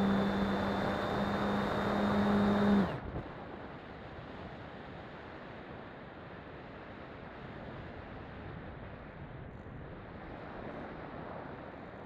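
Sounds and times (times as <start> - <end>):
model plane motor whining: 0.0 - 3.1.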